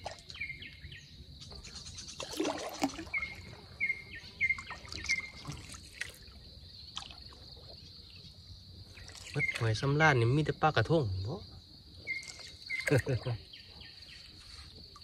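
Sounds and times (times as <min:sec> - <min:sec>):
bird chirping: 0:00.2 - 0:02.3, 0:02.9 - 0:05.7, 0:07.7 - 0:10.4, 0:11.0 - 0:14.7.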